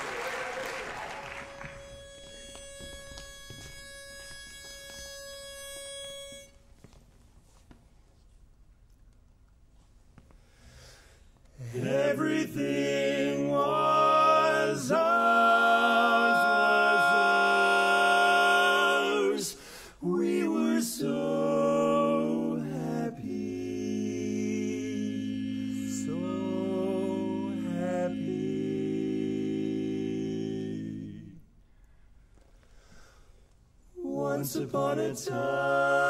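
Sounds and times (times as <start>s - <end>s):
male quartet singing a cappella: 11.6s - 31.5s, 34.0s - 36.0s.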